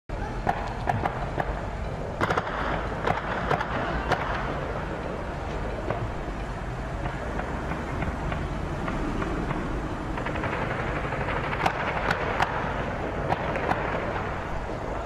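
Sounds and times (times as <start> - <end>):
car engine rumble: 0.1 - 15.0
gunshots: 2.2 - 4.8, 7.0 - 14.7.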